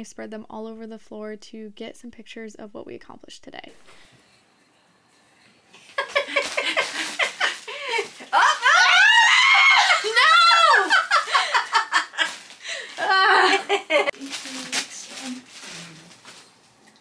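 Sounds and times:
women laughing: 5.8s - 14.2s
women shrieking: 7.7s - 11.9s, 12.8s - 13.7s.

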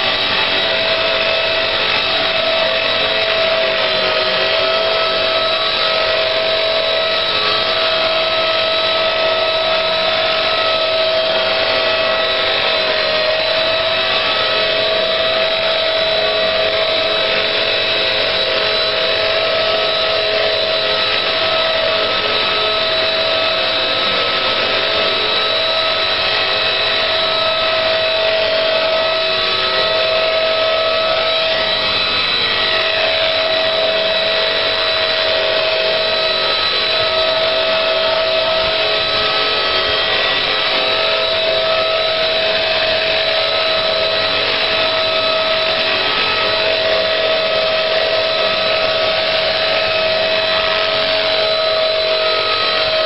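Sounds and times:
rc helicopter motor whine: 0.0s - 53.0s.

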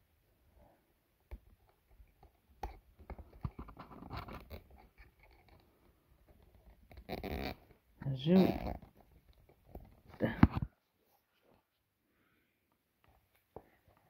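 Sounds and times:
hands handling cardboard and plastic: 1.2s - 11.8s.

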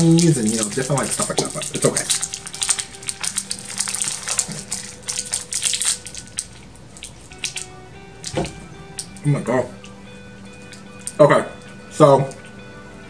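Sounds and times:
plastic wrapper crinkling and tearing: 0.0s - 8.4s.

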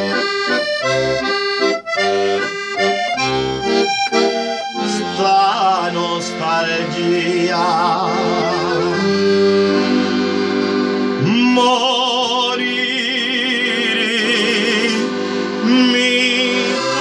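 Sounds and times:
piano-accordion chords: 0.0s - 17.0s
man singing folk song: 4.8s - 9.0s, 11.2s - 17.0s.

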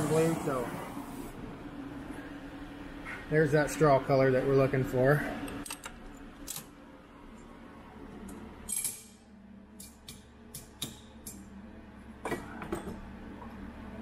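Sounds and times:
hammer tapping metal: 9.8s - 11.4s.

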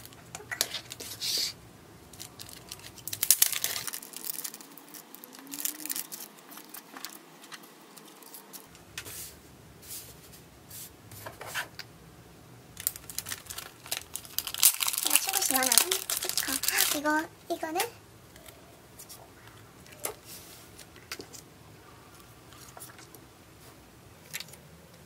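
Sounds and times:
plastic bag crinkling: 2.1s - 8.7s, 12.8s - 17.3s.

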